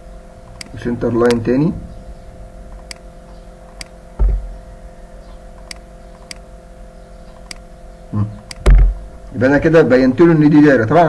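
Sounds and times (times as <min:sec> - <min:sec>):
steady hum: 0:00.0 - 0:11.0
computer mouse clicking: 0:02.7 - 0:03.0, 0:03.7 - 0:03.9, 0:05.6 - 0:06.4, 0:07.3 - 0:07.6
short low thump: 0:04.2 - 0:04.6, 0:08.6 - 0:09.1.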